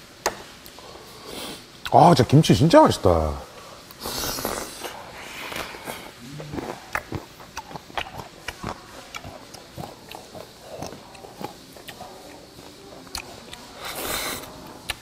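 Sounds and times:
man chewing with wet smacks: 0:03.8 - 0:15.0.

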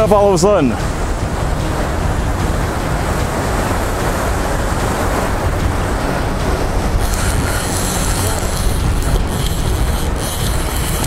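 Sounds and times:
wind rumbling on microphone: 0:00.0 - 0:11.0.

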